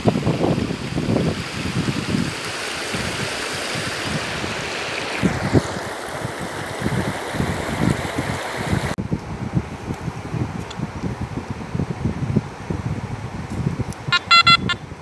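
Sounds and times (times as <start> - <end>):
wind buffeting microphone: 0.0 - 15.0
river rushing over stones: 0.3 - 9.0.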